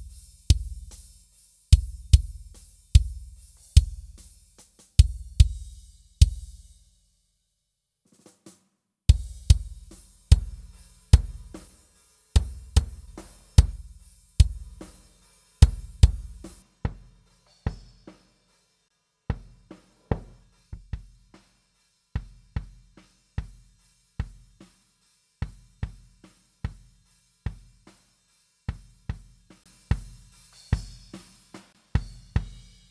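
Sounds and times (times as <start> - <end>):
rock drum groove: 0.0 - 6.9, 8.1 - 18.6, 19.3 - 32.9
cymbal wash: 9.1 - 18.9, 29.7 - 32.9.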